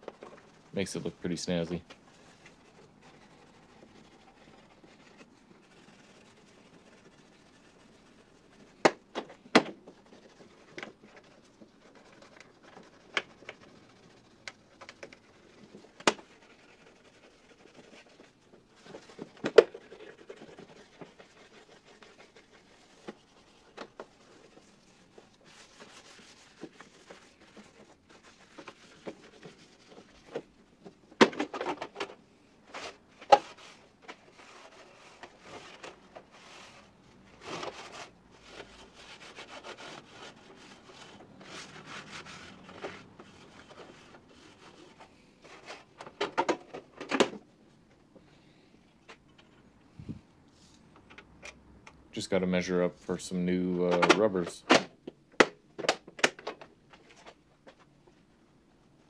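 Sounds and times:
faint rubbing and scraping: 0:00.0 - 0:08.8, 0:09.9 - 0:46.0.

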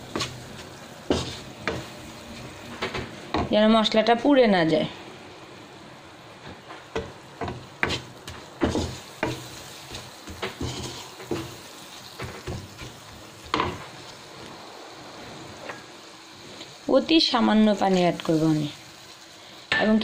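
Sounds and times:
spatula scraping wok: 0:00.0 - 0:03.0, 0:07.0 - 0:14.3
food sizzling in oil: 0:00.0 - 0:20.0.

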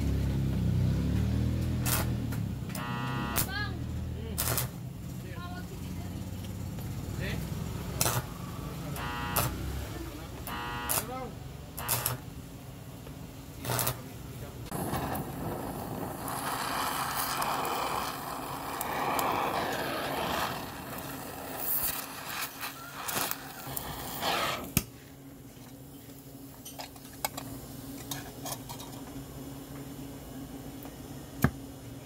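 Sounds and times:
burning metal crackling and popping: 0:01.6 - 0:03.6, 0:04.3 - 0:05.3, 0:06.5 - 0:08.3, 0:11.8 - 0:12.3, 0:13.6 - 0:29.2
gas cutting torch hissing: 0:13.6 - 0:24.9.

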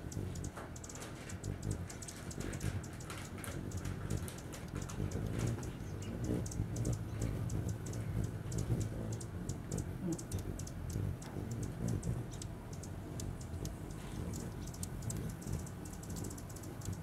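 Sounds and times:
hummingbird chip calls: 0:00.0 - 0:17.0.

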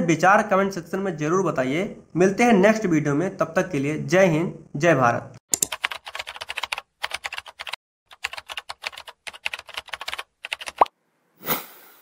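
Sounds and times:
keyboard keystrokes: 0:05.6 - 0:10.9.

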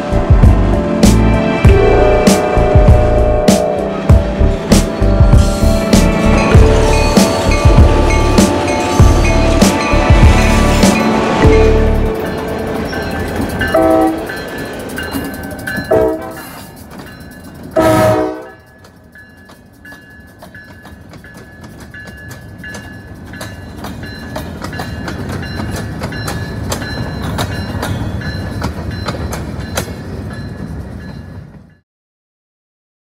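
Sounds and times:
freight train rumbling past: 0:00.0 - 0:31.8
train horn blasts: 0:01.6 - 0:04.1, 0:13.7 - 0:14.3, 0:15.9 - 0:16.6, 0:17.8 - 0:18.7.

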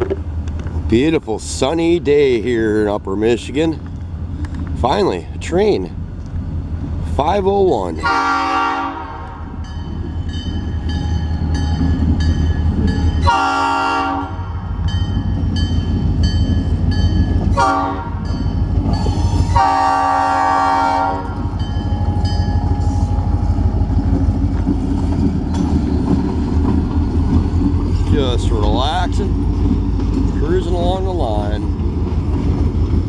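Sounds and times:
locomotive air horn blasts: 0:08.0 - 0:09.4, 0:13.2 - 0:14.5, 0:17.5 - 0:18.2, 0:19.2 - 0:21.4
high ringing note: 0:21.6 - 0:23.4.

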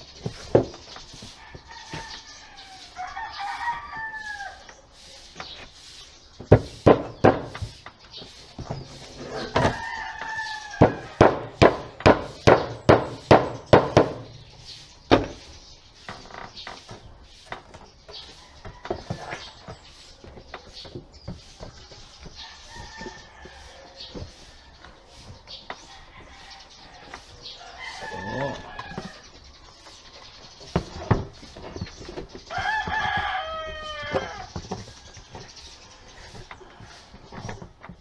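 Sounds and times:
rooster crowing: 0:01.4 - 0:04.6, 0:26.1 - 0:29.2, 0:32.5 - 0:34.5.

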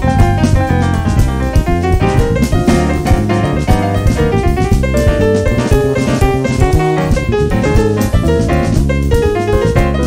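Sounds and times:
pitched instrument notes: 0:00.0 - 0:10.0
steady drum beat: 0:00.0 - 0:10.0.

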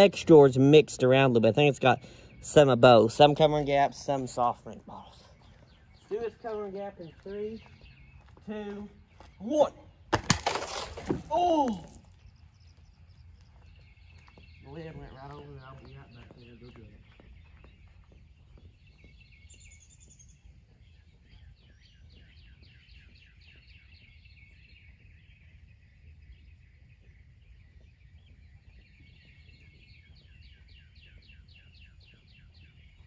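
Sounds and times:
bird chirping: 0:00.0 - 0:33.0.

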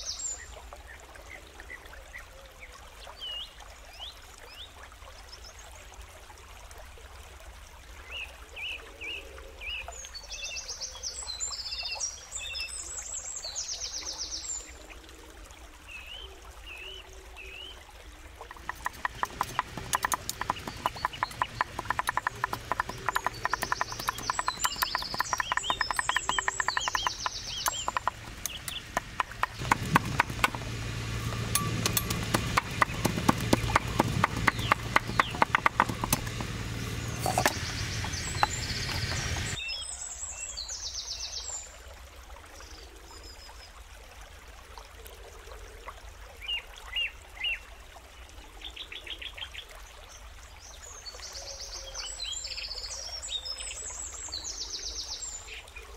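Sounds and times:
rapid knocking: 0:18.5 - 0:39.6
birds chirping: 0:18.5 - 0:39.9.

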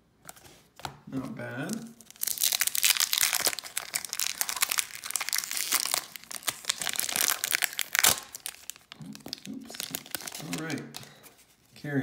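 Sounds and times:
foil wrapper crinkling: 0:01.7 - 0:11.3.

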